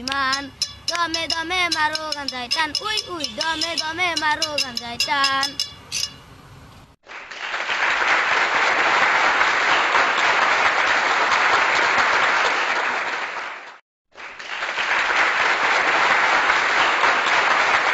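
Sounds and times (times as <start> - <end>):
audience applause: 7.0 - 17.9.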